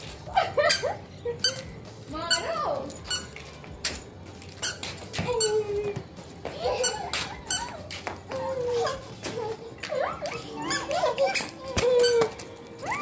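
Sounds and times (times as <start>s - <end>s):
toddler squealing and crying: 9.9s - 13.0s.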